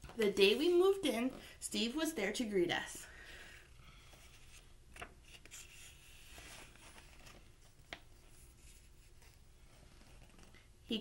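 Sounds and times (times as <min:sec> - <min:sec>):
faint room hiss: 0:00.0 - 0:11.0
book pages rustling: 0:04.1 - 0:10.7.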